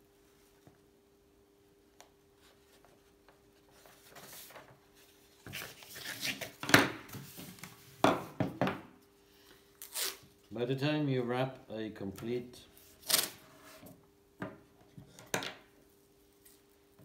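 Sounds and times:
paper rustling and crinkling: 3.7s - 6.6s.

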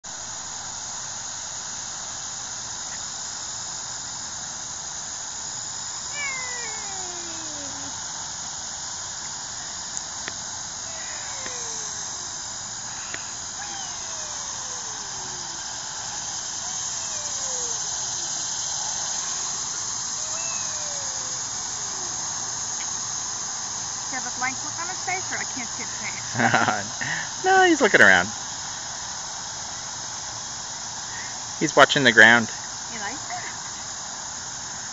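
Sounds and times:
steady high hiss: 0.1s - 34.9s
swing chain squeaking: 12.9s - 15.6s.

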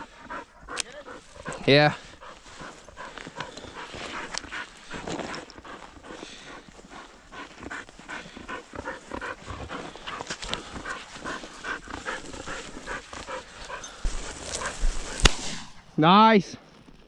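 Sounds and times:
dog panting fast: 0.0s - 15.2s
shotgun shot: 15.2s - 15.8s.

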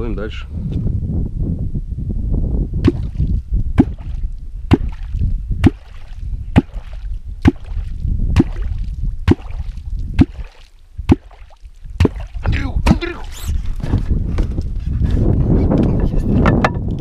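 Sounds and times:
low rumble of wind and water: 0.0s - 17.0s
metal tool popping into water: 2.8s - 12.5s.

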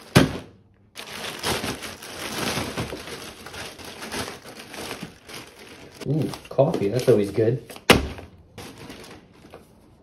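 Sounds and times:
plastic mailer bag crinkling: 0.0s - 7.9s, 8.5s - 9.8s
package thudding on desk: 7.8s - 8.3s.

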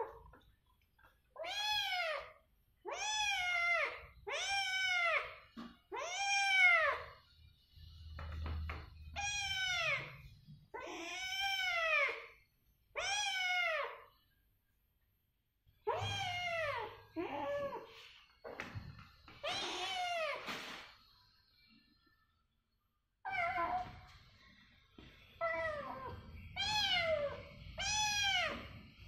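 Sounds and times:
kittens meowing: 15.8s - 17.9s, 25.4s - 28.7s.

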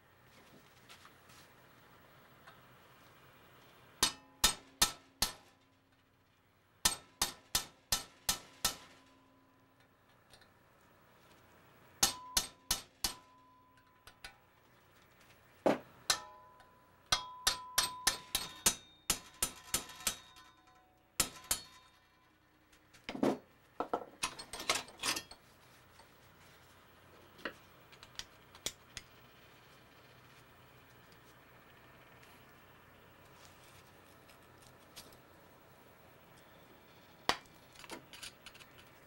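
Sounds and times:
hammer tapping metal punch: 4.0s - 5.6s, 6.8s - 9.4s, 12.0s - 14.4s, 15.7s - 22.0s.

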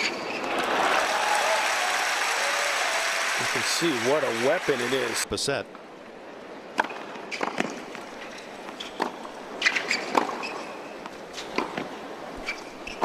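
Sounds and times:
hushed stadium crowd: 0.0s - 5.6s.

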